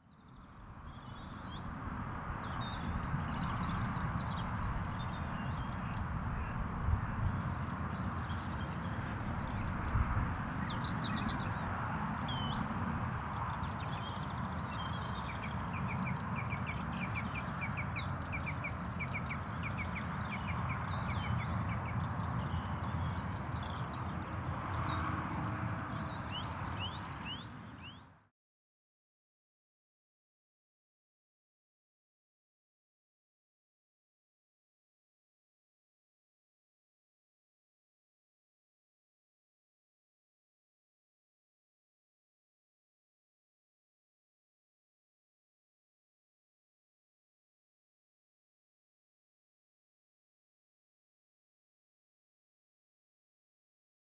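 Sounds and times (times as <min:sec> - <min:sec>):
small birds chirping: 0:00.1 - 0:28.2.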